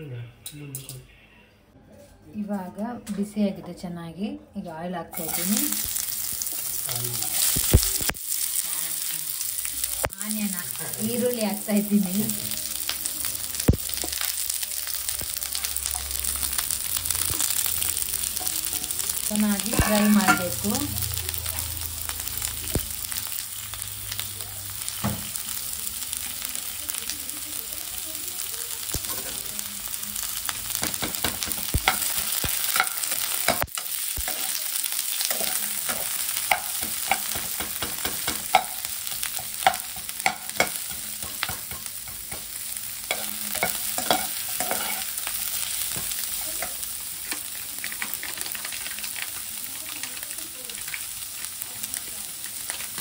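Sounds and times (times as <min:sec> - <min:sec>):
onions sizzling in hot oil: 0:05.1 - 0:53.0
metal spatula scraping a pan: 0:43.1 - 0:46.1.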